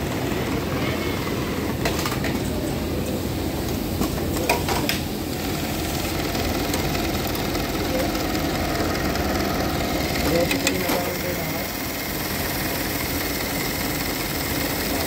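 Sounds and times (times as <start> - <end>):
industrial sewing machine running: 5.0 - 15.0.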